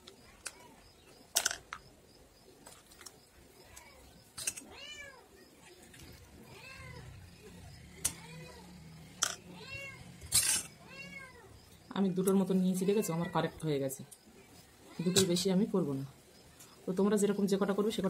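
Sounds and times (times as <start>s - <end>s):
cat meowing: 3.7s - 5.3s, 6.4s - 7.2s, 8.0s - 11.6s.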